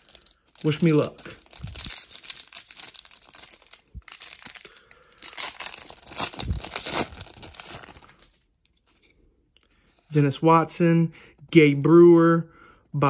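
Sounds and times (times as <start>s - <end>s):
foil wrapper crinkling: 0.0s - 8.4s.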